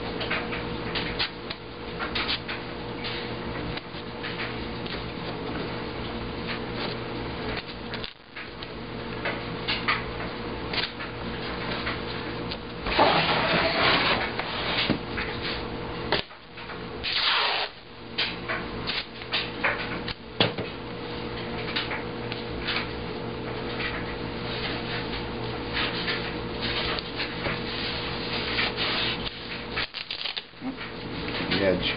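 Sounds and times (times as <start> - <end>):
steady low hum: 0.0 - 31.9
drawer scraping on table: 12.9 - 15.0.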